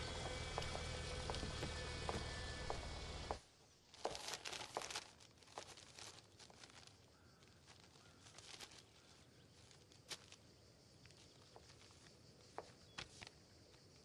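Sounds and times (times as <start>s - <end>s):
paper rustling and crinkling: 3.9s - 13.4s.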